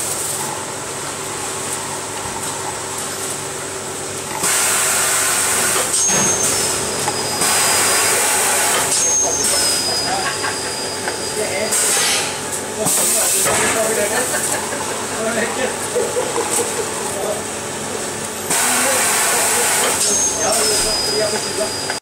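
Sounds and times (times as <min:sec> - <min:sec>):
machine humming and hissing: 0:00.0 - 0:22.0
loud airy hiss: 0:18.5 - 0:20.1.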